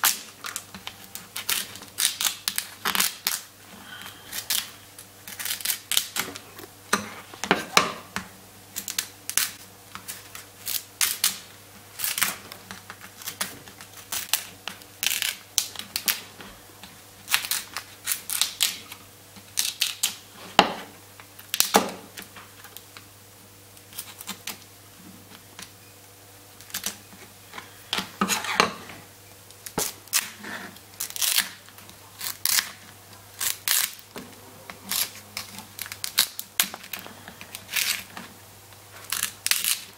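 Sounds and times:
knife cracking crab shell: 0:00.0 - 0:03.5, 0:04.3 - 0:06.3, 0:08.8 - 0:11.4, 0:12.0 - 0:16.2, 0:31.0 - 0:34.1, 0:34.9 - 0:38.2, 0:39.0 - 0:39.9
low steady hum: 0:00.0 - 0:39.9.

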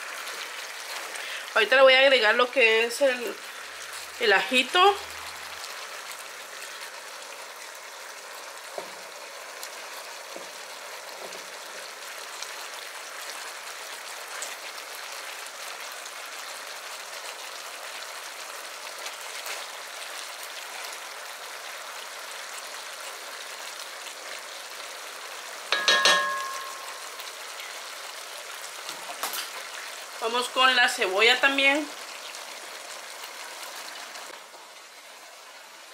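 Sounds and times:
chicken sizzling in a pot: 0:00.0 - 0:35.9
short ringing clink: 0:25.7 - 0:27.1.

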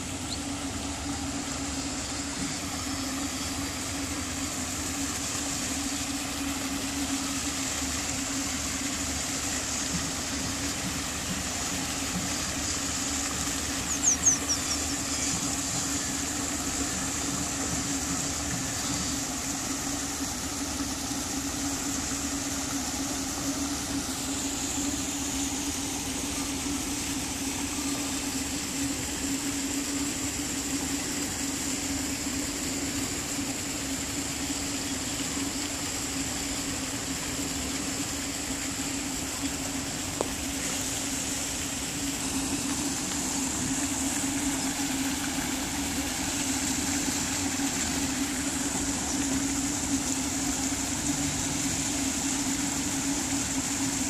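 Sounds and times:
constant hiss: 0:00.0 - 0:54.0
mechanical hum: 0:00.0 - 0:54.0
high chirps: 0:13.9 - 0:14.9.

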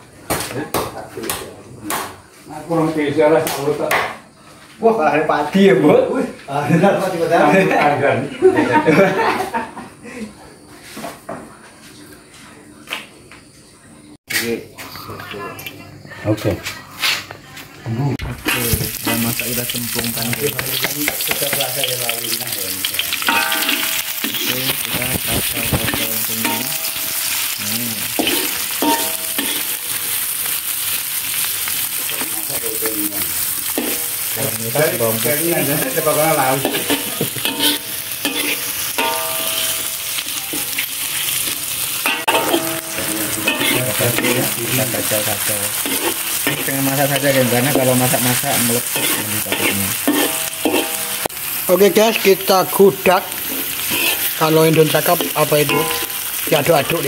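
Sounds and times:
shallots sizzling in hot oil: 0:06.5 - 0:09.0, 0:18.0 - 0:57.0
metal spatula stirring in wok: 0:18.4 - 0:32.4, 0:33.4 - 0:34.4, 0:35.6 - 0:51.6, 0:53.3 - 0:57.0.

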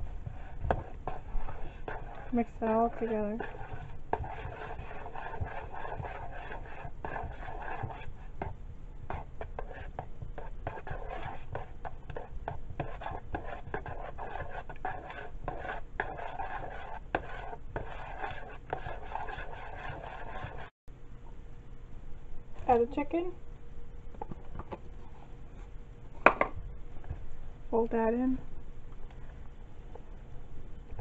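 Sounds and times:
spatula scraping in a bowl: 0:00.0 - 0:20.7.

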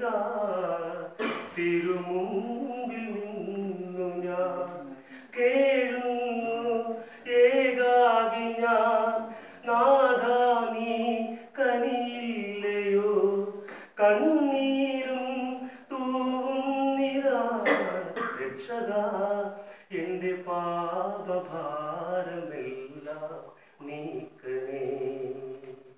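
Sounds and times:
man singing unaccompanied: 0:00.0 - 0:25.9.

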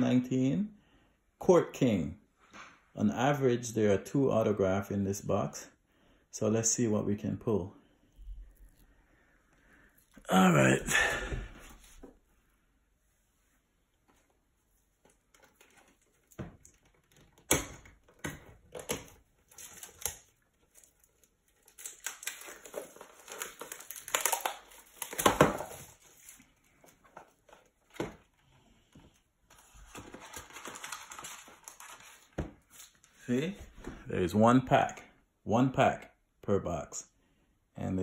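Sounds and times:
plastic wrapping crinkling and tearing: 0:18.6 - 0:28.0, 0:29.7 - 0:33.1.

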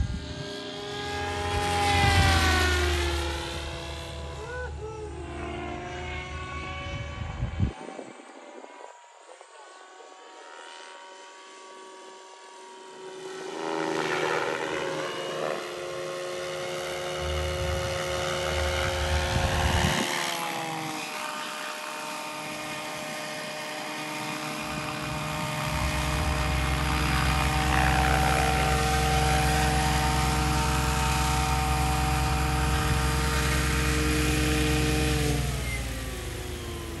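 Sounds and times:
model helicopter motor whine: 0:00.0 - 0:37.0
rotor blades chopping: 0:13.9 - 0:37.0
low rumble: 0:17.0 - 0:20.0, 0:24.6 - 0:33.4.

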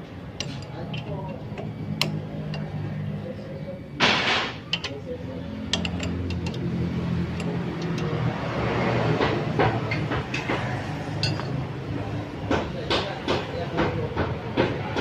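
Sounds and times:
wrench clinking against nut: 0:04.7 - 0:05.0, 0:05.7 - 0:06.7, 0:11.2 - 0:11.6.

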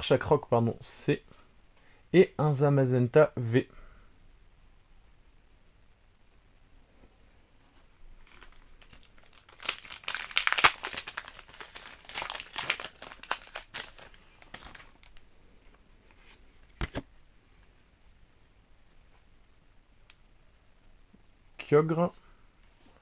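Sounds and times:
foil wrapper crinkling and tearing: 0:08.2 - 0:15.2.

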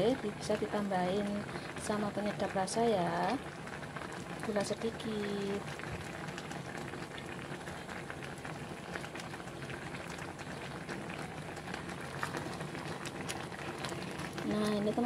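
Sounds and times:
soup boiling and bubbling: 0:00.0 - 0:15.0.

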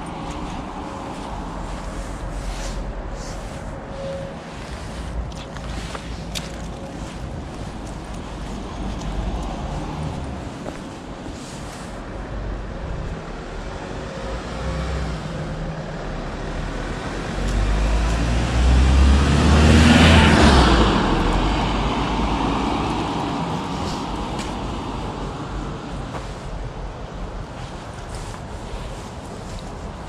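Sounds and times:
car driving past: 0:16.4 - 0:24.1.

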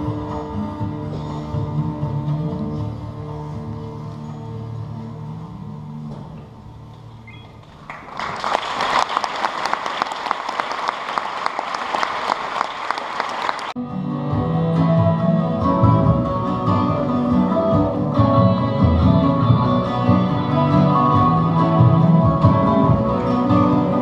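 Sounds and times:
audience applauding: 0:07.6 - 0:13.8
instrumental music: 0:13.8 - 0:24.0.

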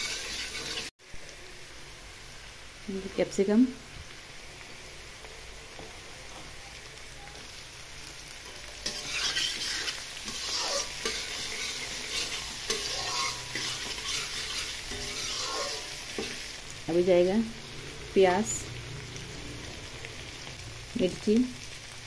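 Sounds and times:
metal spatula scraping a wok: 0:00.0 - 0:00.9, 0:08.4 - 0:16.7
vegetables sizzling in oil: 0:00.0 - 0:22.0.

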